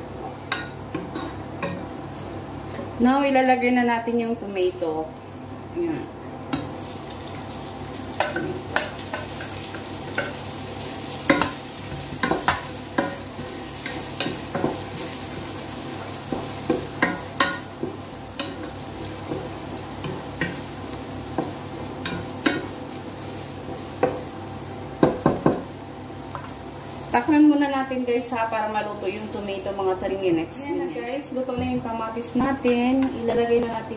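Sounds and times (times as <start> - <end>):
vegetables sizzling in oil: 0.0 - 33.9.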